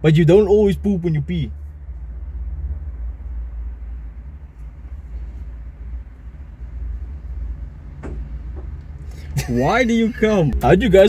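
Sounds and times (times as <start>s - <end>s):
steady low rumble and hum: 0.0s - 11.0s.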